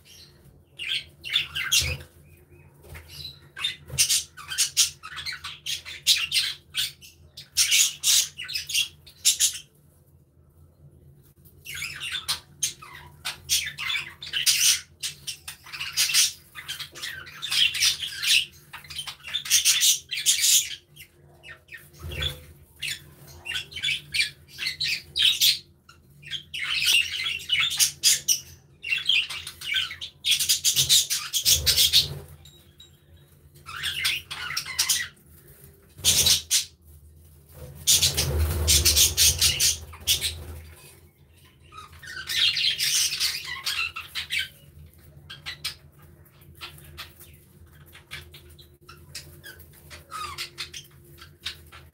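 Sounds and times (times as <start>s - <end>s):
budgerigars chattering and warbling: 0.1s - 2.1s, 26.2s - 32.4s, 33.6s - 35.2s, 36.0s - 36.7s, 37.9s - 41.0s, 41.6s - 51.9s.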